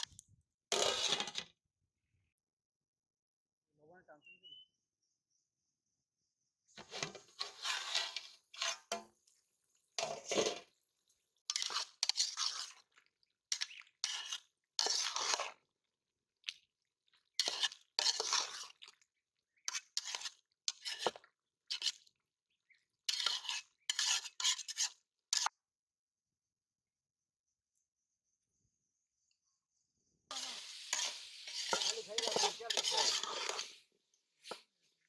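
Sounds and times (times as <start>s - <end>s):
metal spatula scraping a pot: 0.7s - 1.4s, 6.8s - 9.2s, 9.9s - 10.8s, 11.4s - 15.7s, 17.2s - 19.0s, 19.6s - 22.2s, 23.0s - 25.5s, 30.3s - 34.8s.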